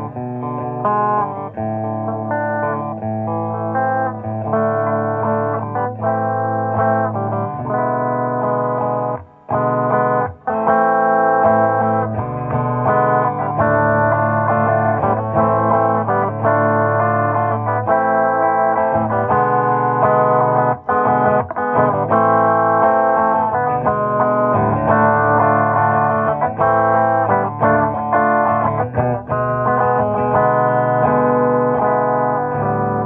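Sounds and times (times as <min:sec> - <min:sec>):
electric guitar chords: 0:00.0 - 0:33.0.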